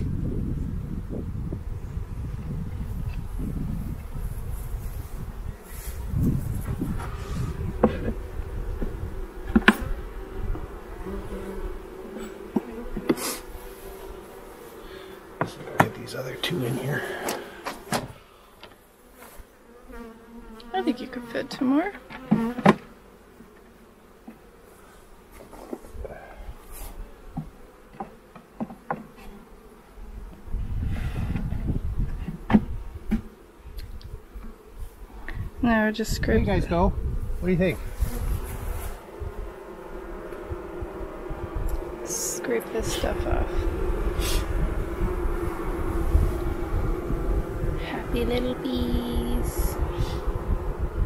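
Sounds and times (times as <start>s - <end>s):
bees buzzing: 0.0s - 51.0s
wooden knocks of hive tool: 6.6s - 10.0s, 12.2s - 13.2s, 15.3s - 16.1s, 17.2s - 18.8s, 21.9s - 24.4s, 27.3s - 29.4s, 31.3s - 33.3s.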